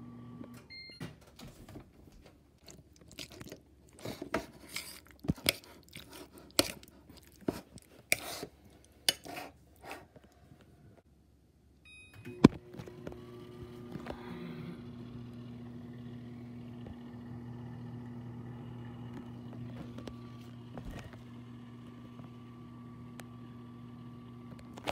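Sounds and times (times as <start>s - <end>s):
microwave beep: 0.0s - 1.2s, 11.8s - 13.8s
microwave hum: 0.0s - 5.4s, 11.8s - 24.9s
crunching and clattering: 2.2s - 9.3s.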